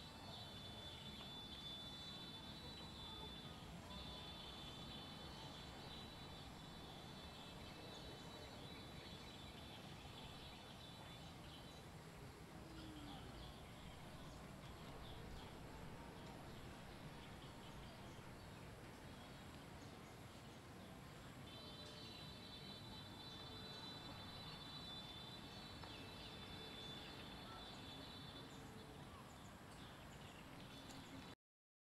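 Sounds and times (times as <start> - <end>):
thin high steady tones: 0.0 - 31.2
steady high hum: 0.0 - 31.3
faint outdoor hiss: 0.0 - 31.4
soft bird chirps: 21.4 - 31.4.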